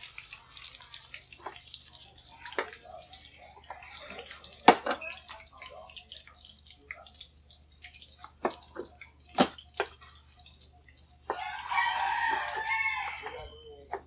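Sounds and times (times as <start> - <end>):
rooster crowing: 11.3 - 13.6.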